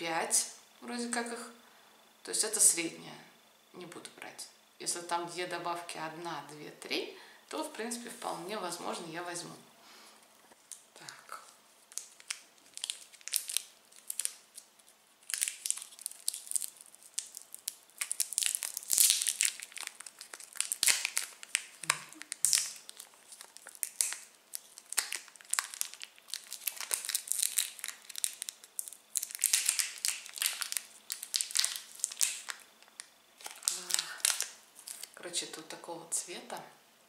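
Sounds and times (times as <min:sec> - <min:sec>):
plastic candy wrapper crinkling: 0:10.5 - 0:35.6.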